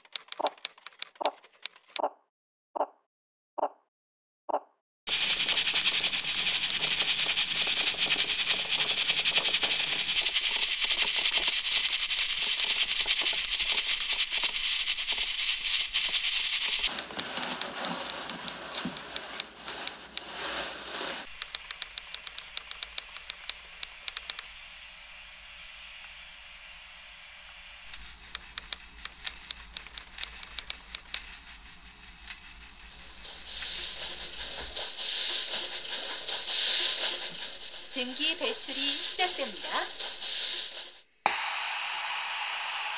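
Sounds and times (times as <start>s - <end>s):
sharp ticks: 0.0s - 2.1s, 5.1s - 19.5s, 21.3s - 24.5s, 27.9s - 31.4s
rice cooker crackling sizzle: 5.1s - 34.3s.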